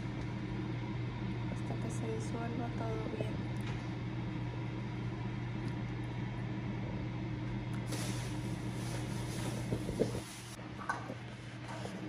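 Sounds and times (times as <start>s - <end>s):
steady low hum: 0.0s - 12.0s
liquid bubbling and hissing: 6.8s - 12.0s.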